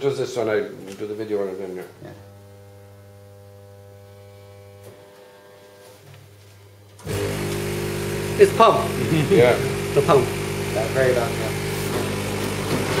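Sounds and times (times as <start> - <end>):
pump motor running: 2.0 - 5.9, 7.0 - 13.0
vending machine humming: 6.6 - 13.0.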